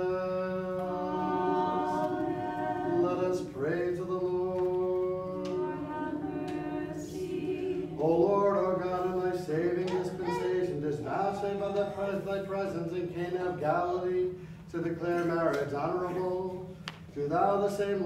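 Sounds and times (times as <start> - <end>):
choir singing a cappella: 0.0 - 10.7.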